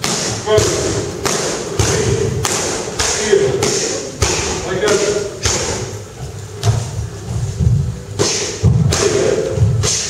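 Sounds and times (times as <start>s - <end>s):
punches and kicks on pads: 0.0s - 5.9s.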